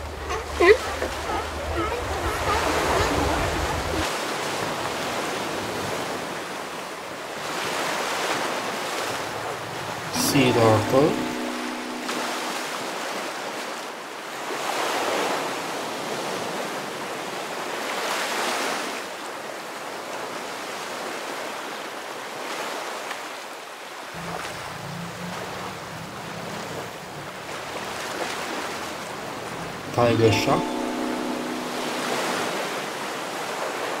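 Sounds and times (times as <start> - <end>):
sea water rushing: 0.0 - 34.0.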